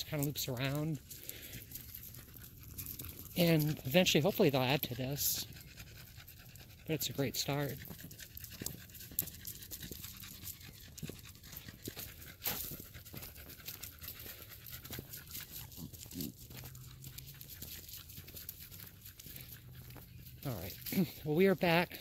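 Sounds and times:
dog panting: 0.0 - 22.0
footsteps on dry leaves: 11.0 - 21.3.

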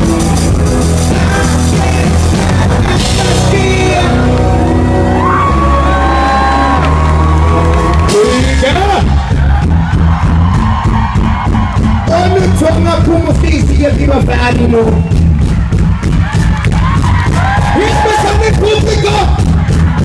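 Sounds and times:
live pop band playing: 0.0 - 20.0
person singing into microphone: 0.1 - 6.8.

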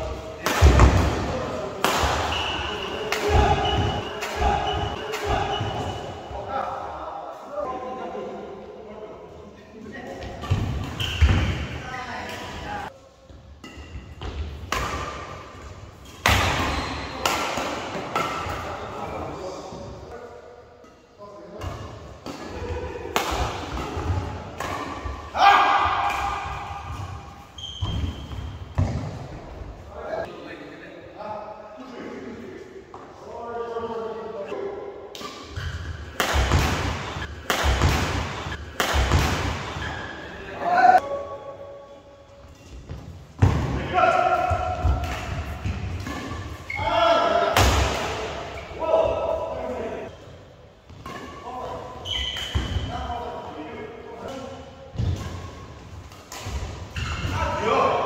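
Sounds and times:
rackets hitting shuttlecock: 0.4 - 6.0, 13.6 - 18.8, 21.6 - 29.2, 35.1 - 39.8, 43.4 - 48.6, 54.2 - 58.0
racket striking shuttlecock: 35.1 - 39.7.

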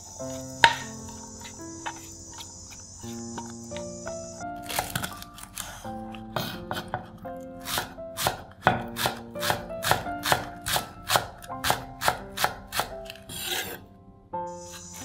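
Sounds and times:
background music: 0.0 - 15.0
knife chopping on wooden board: 0.6 - 1.2, 6.4 - 13.7.

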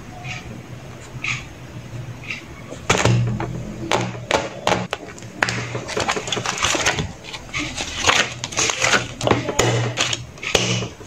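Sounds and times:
plastic cover crinkling: 4.2 - 11.0.

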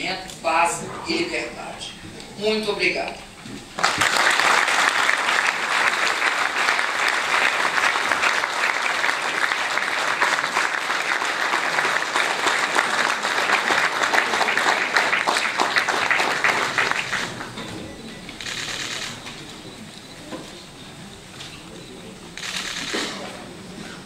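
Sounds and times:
audience applauding: 3.7 - 17.8.

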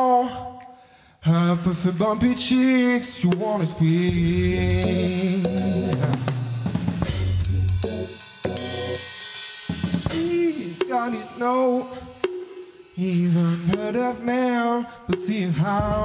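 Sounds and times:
drum kit groove: 3.2 - 16.0
low bass line: 4.2 - 9.0.

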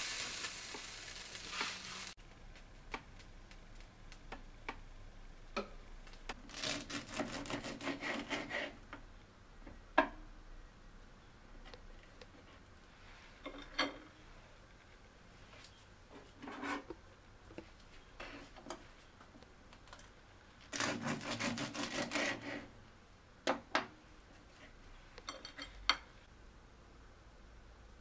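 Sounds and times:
knife sawing through toast: 6.6 - 8.8, 20.8 - 22.7.

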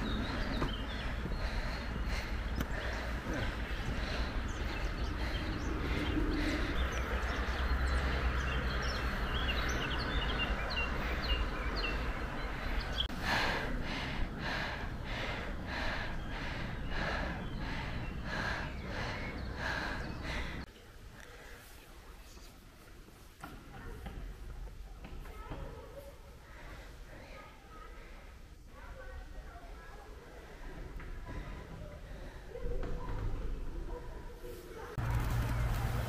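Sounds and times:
birds chirping: 0.0 - 22.8.

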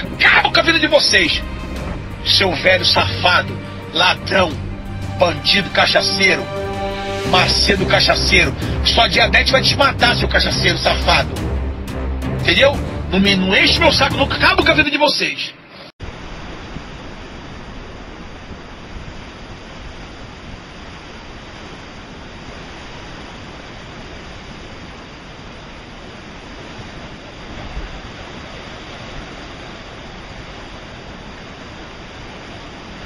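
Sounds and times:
waves breaking on rocky shore: 16.0 - 33.0.

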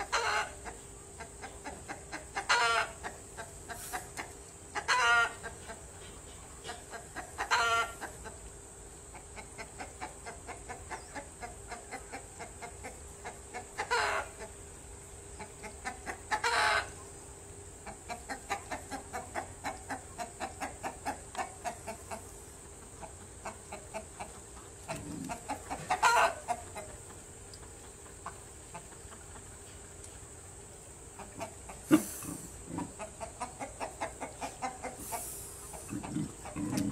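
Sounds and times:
short animal calls: 31.7 - 33.0
louder animal calls: 31.8 - 33.0.

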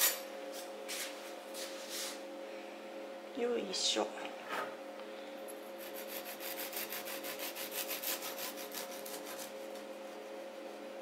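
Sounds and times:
knife sawing through cake: 5.8 - 9.6.

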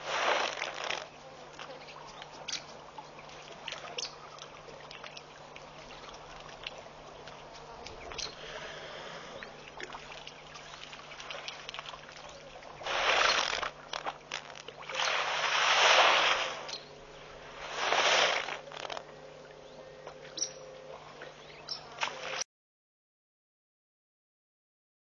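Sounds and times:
water splashing and pouring: 0.0 - 1.1, 9.8 - 16.7, 17.5 - 19.0
faint steady hum: 0.0 - 22.5.

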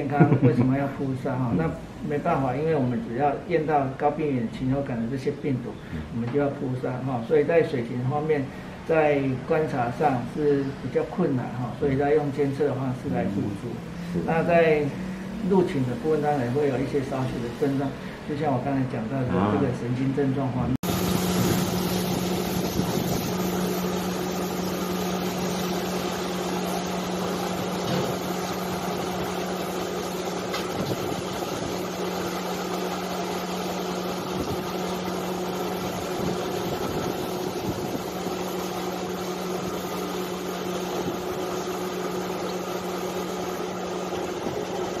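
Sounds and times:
engine humming: 13.0 - 18.3
pressure hose spraying: 20.8 - 45.0.

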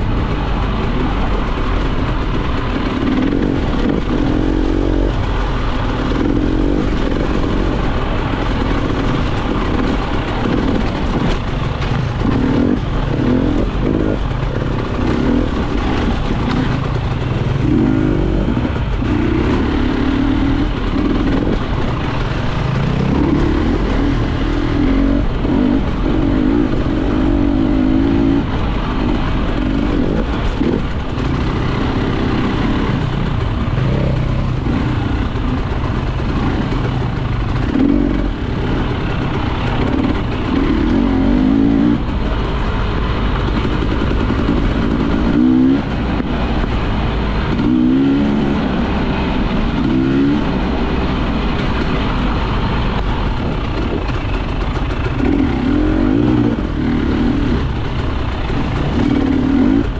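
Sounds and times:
motorcycle engine revving: 0.0 - 59.9
rough riding noise: 0.0 - 59.9.

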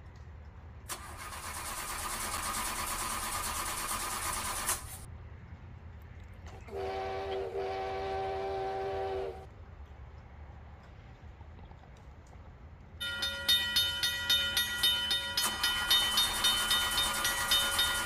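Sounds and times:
multi-tone train horn: 6.6 - 9.5.

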